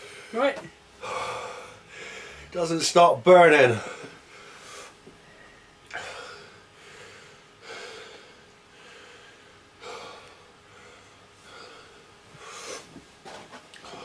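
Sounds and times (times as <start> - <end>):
man gasping breaths: 1.0 - 2.6, 3.7 - 13.0.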